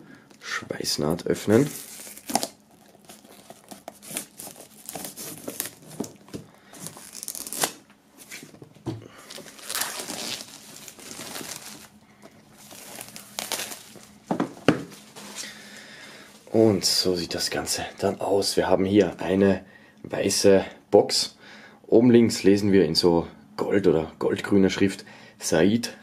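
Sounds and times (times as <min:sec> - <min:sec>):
plastic film crinkling and tearing: 0:01.4 - 0:07.9, 0:09.2 - 0:14.2
knife slitting plastic film: 0:01.6 - 0:06.2, 0:06.8 - 0:07.8, 0:09.4 - 0:11.9, 0:12.6 - 0:14.0.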